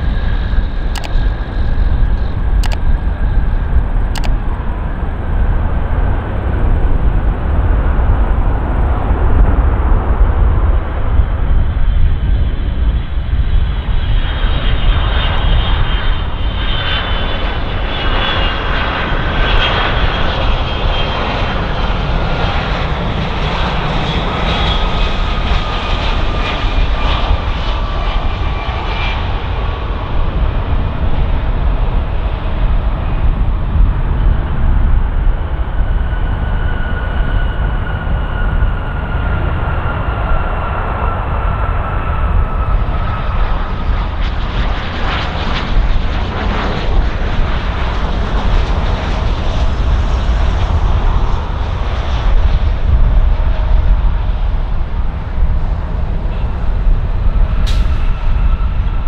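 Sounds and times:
jet airliner passing: 0.0 - 59.0
turbofan whines falling in pitch: 14.6 - 59.0.

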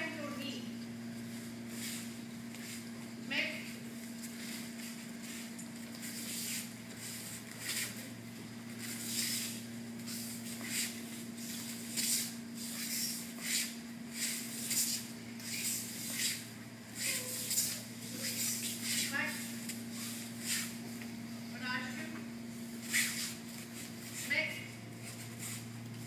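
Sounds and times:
bare feet brushing mat: 1.2 - 2.9, 4.2 - 20.9, 22.7 - 25.8.

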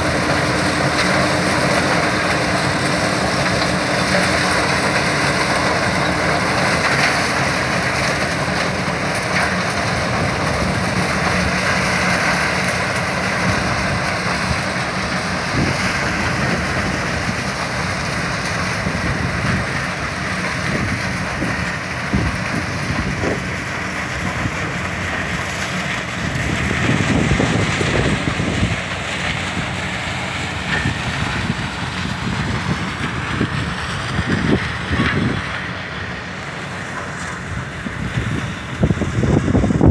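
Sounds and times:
harvesting machinery running: 0.0 - 39.9
wind gusting on microphone: 13.4 - 19.9, 20.6 - 24.9, 26.0 - 35.8, 37.4 - 39.9.

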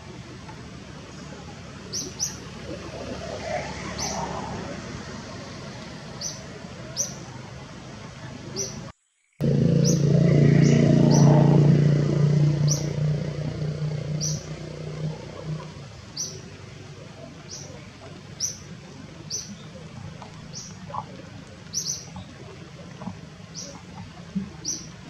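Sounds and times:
loud low droning hum: 9.4 - 17.4.

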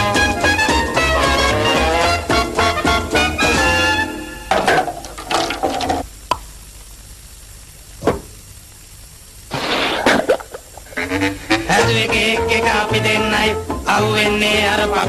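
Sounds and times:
music: 0.0 - 4.6, 11.0 - 15.0.

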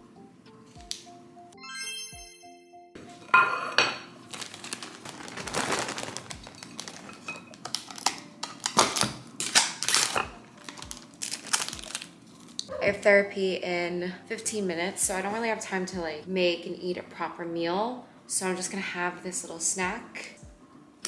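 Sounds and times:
soft background music: 0.0 - 21.0
plastic bag crinkling: 4.2 - 12.7.

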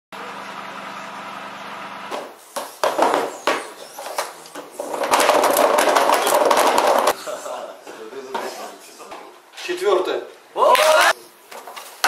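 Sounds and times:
capsules rattling in plastic drum: 4.8 - 7.1.

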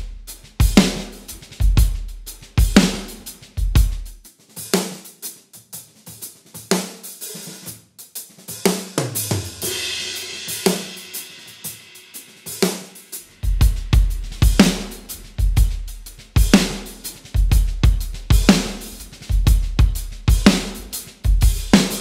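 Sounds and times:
drum kit groove: 0.0 - 22.0
kick drum thumps: 13.4 - 14.8, 17.4 - 18.7, 19.3 - 20.6.

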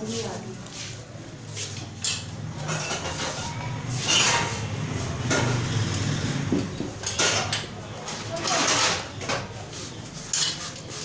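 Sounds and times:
pots and pans clattering: 2.0 - 9.6, 10.3 - 10.8.

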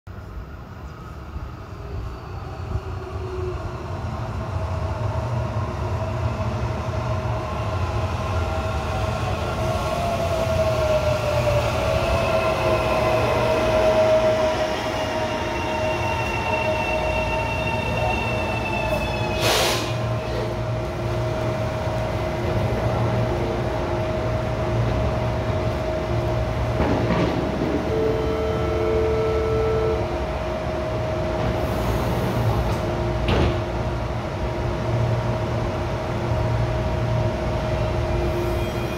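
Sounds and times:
air hiss: 19.4 - 20.1
beep: 28.0 - 30.0.

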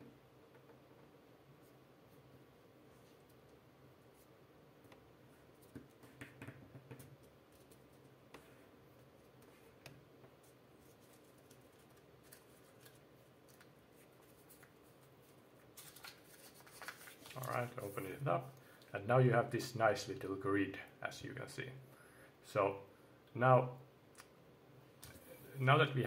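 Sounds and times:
paper crinkling and rustling: 10.4 - 18.1.

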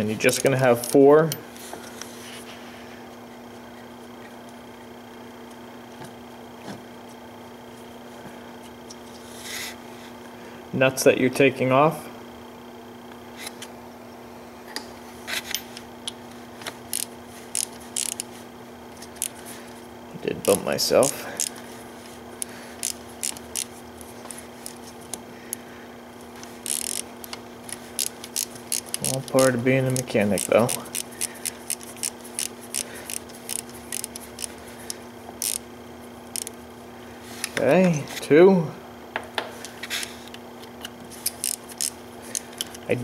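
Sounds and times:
faint steady hum: 0.0 - 43.0
hand ratchet clicking: 16.9 - 18.3, 20.4 - 21.6, 22.4 - 25.2, 26.6 - 35.6, 36.3 - 36.6, 41.2 - 42.8.

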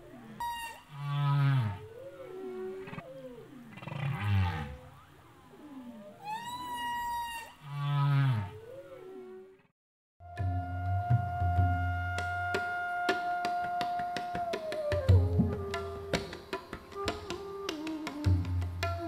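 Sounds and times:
whale moaning calls: 5.6 - 9.6.

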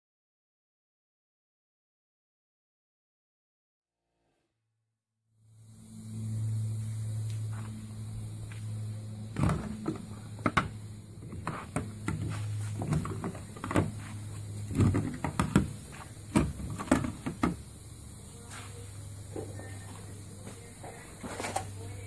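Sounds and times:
steady low hum: 5.4 - 22.0.

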